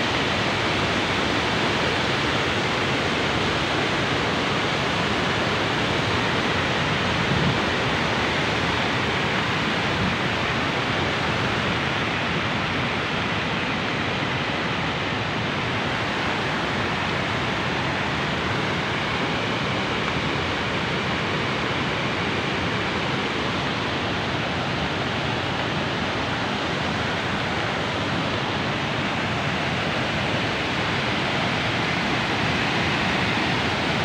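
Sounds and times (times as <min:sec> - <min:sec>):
river rushing over rapids: 0:00.0 - 0:34.0.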